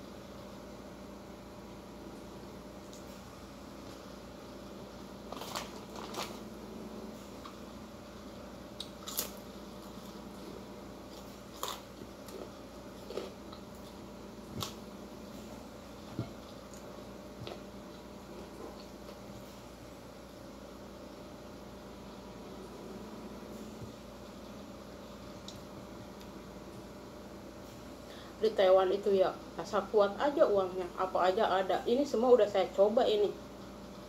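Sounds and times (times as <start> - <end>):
steady low hum: 0.0 - 34.0
person chewing food: 7.3 - 14.8, 15.4 - 19.4.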